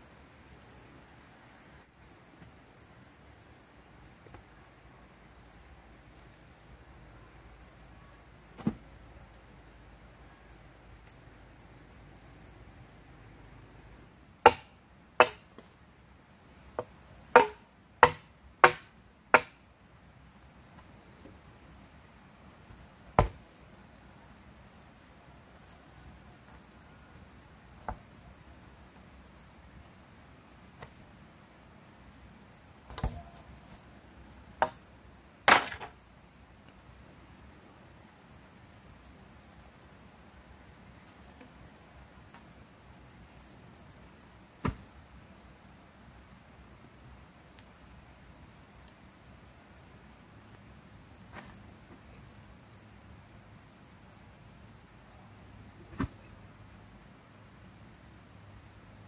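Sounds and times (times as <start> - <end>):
tool chopping bamboo: 14.4 - 15.4, 16.8 - 19.6, 23.2 - 23.4, 35.5 - 35.9.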